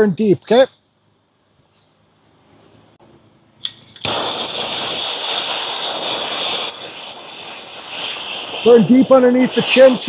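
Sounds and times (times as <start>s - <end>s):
torch igniter click: 3.6s - 8.6s
torch flame hissing: 3.6s - 10.0s.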